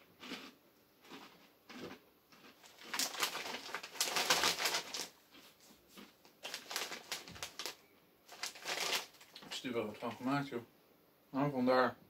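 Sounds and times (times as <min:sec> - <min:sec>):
crunchy snack being chewed: 0:00.1 - 0:09.5.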